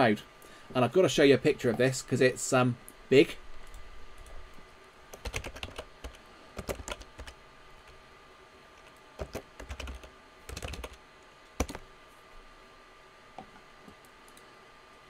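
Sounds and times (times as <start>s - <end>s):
keyboard typing: 5.1s - 8.0s, 8.8s - 11.0s, 11.6s - 11.8s.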